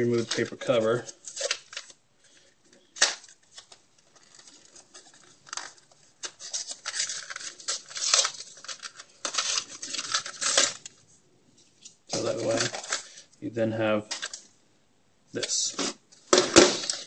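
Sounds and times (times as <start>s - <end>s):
rubbing and scraping plastic: 0.0s - 11.0s, 11.6s - 13.3s.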